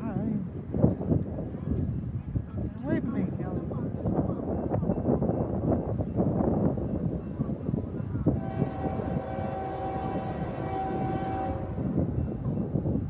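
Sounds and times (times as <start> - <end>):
locomotive air horn blast: 8.4 - 11.9.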